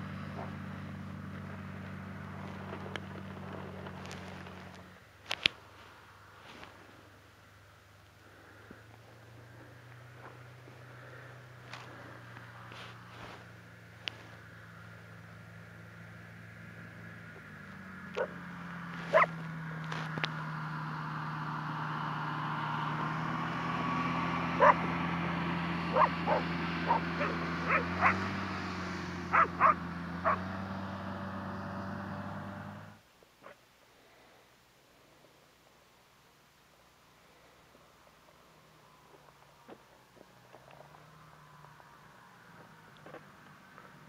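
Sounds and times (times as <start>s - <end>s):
dog barking: 18.2s - 18.4s, 19.0s - 19.4s, 24.6s - 24.8s, 25.9s - 28.3s, 29.3s - 30.4s.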